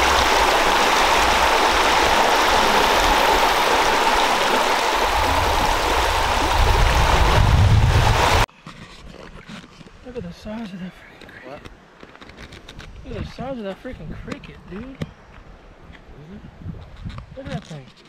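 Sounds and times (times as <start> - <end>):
river rushing over rocks: 0.0 - 8.5.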